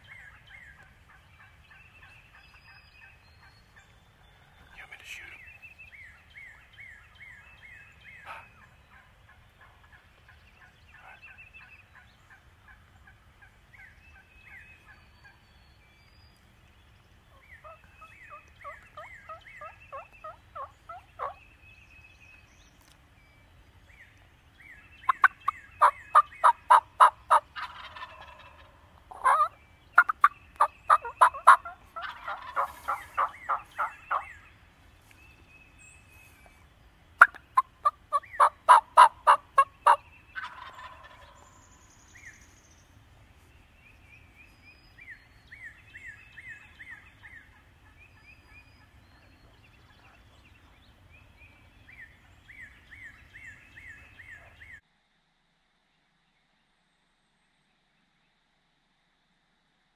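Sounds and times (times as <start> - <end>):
distant turkey calls: 0.0 - 15.4, 17.3 - 21.4, 25.0 - 34.5, 37.2 - 42.3, 45.0 - 54.8
turkeys gobbling: 8.2 - 13.9, 17.3 - 21.4, 25.1 - 34.4, 37.2 - 41.6.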